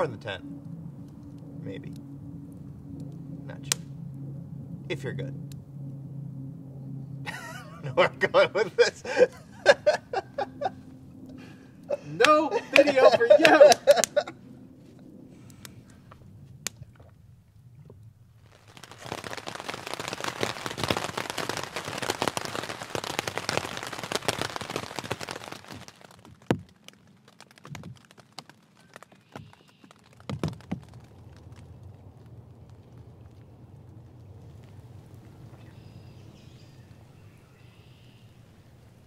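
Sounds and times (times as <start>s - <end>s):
rain pattering on a tent: 7.3s - 10.7s, 12.2s - 14.3s, 18.4s - 39.0s.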